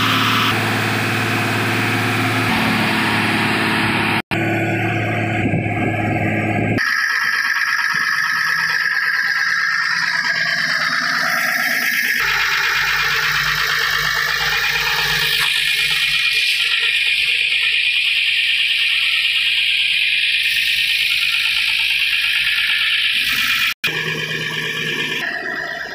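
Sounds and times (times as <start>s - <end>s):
low hum: 0.0s - 16.4s
diesel truck engine running: 0.0s - 25.9s.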